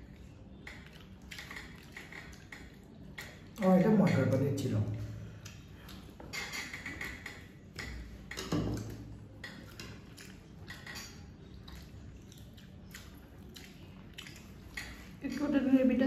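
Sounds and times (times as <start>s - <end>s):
chewing: 0.0s - 3.6s, 5.3s - 8.1s, 8.8s - 15.2s.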